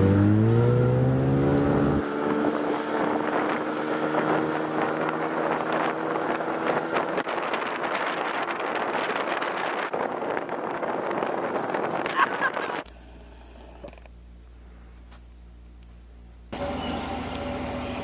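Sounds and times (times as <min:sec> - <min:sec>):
outboard motor speeding up: 0:00.0 - 0:13.0
wind buffeting microphone: 0:02.0 - 0:12.9.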